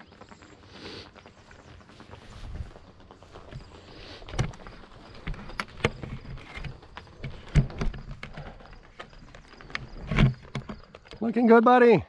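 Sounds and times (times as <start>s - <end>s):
knocks and rustles: 2.4s - 11.2s.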